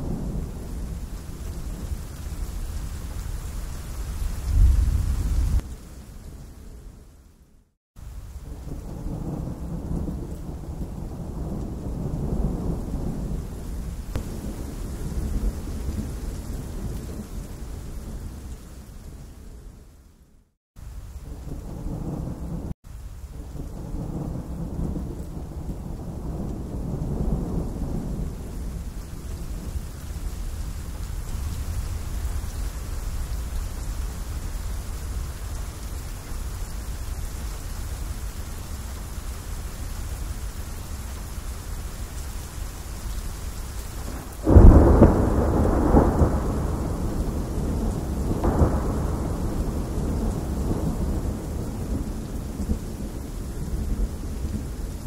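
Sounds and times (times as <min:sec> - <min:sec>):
low rolling thunder: 0:00.0 - 0:03.3, 0:04.3 - 0:05.7, 0:08.4 - 0:18.9, 0:21.2 - 0:22.7, 0:23.3 - 0:35.0, 0:44.0 - 0:55.0
rain falling on leaves: 0:00.0 - 0:55.0
loud thunderclap: 0:14.1 - 0:17.3, 0:44.1 - 0:54.7.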